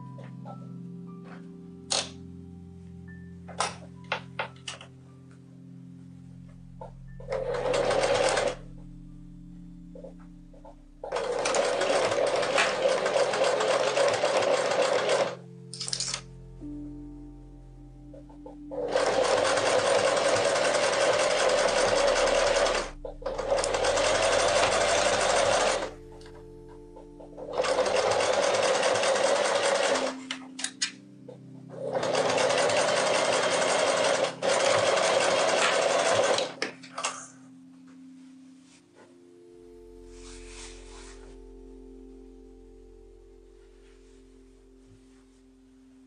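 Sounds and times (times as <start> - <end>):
electric sewing machine stitching: 7.3 - 8.6, 11.1 - 15.4, 18.7 - 26.0, 27.4 - 30.2, 31.7 - 36.6.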